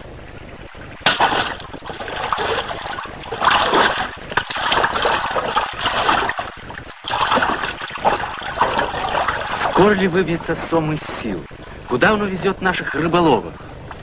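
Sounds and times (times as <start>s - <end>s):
river water splashing: 1.0s - 10.7s.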